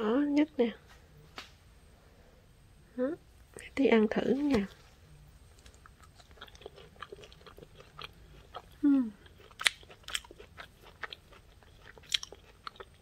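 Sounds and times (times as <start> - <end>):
chewing crunchy apple chip: 5.5 - 13.0.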